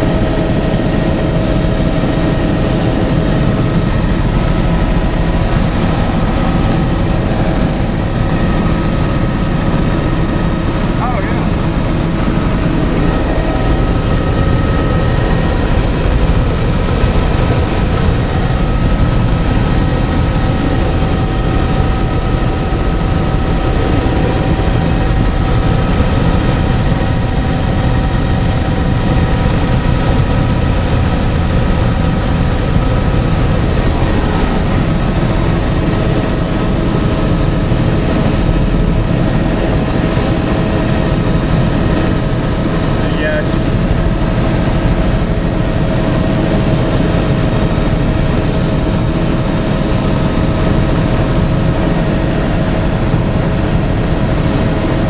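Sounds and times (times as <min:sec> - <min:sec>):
helicopter engine and rotor drone: 0:00.0 - 0:55.0
high-pitched whine: 0:00.0 - 0:55.0.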